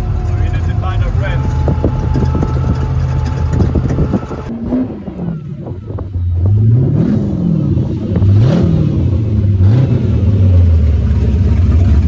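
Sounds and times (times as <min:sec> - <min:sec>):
truck engine revving: 0:00.0 - 0:12.0.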